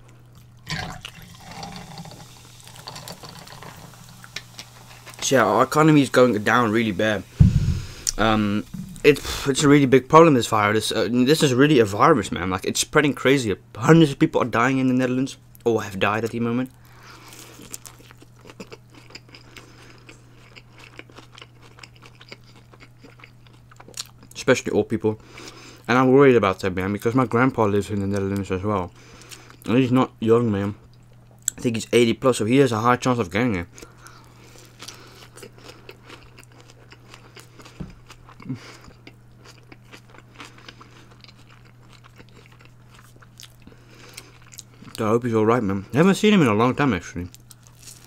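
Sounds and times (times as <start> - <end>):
steady low hum: 0.0 - 25.9
low thumps: 7.3 - 9.7
chewing crunches: 7.8 - 9.4, 16.8 - 24.4, 33.8 - 45.0, 47.3 - 48.0
burger biting and chewing: 17.3 - 24.3.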